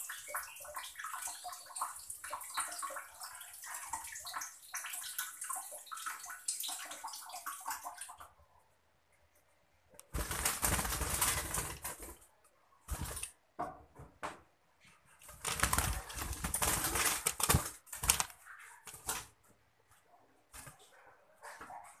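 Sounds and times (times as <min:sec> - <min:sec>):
bird wings flapping and rustling: 0:10.1 - 0:12.2, 0:12.8 - 0:13.4, 0:15.2 - 0:19.4.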